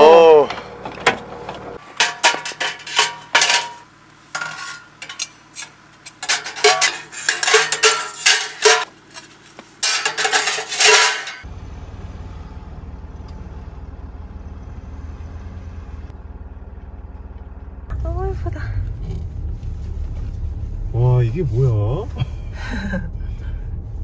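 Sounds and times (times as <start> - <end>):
car engine rumble: 0.0 - 24.0
metal stove parts clanking: 0.5 - 11.5.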